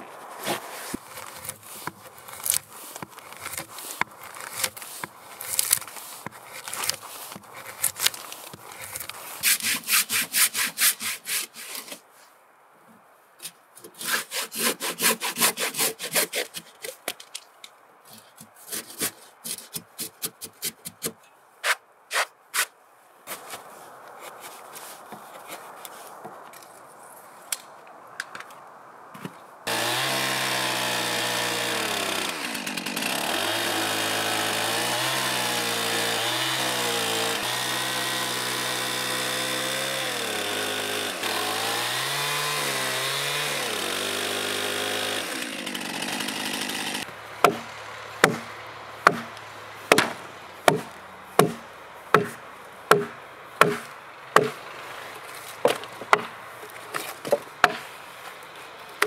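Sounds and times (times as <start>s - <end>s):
hand saw cutting wood: 0.4s - 12.0s, 13.8s - 17.0s, 18.1s - 22.7s, 29.7s - 57.9s
chisel cutting wood: 0.5s - 12.0s, 13.9s - 17.0s, 29.7s - 54.7s
chainsaw running: 29.7s - 50.1s.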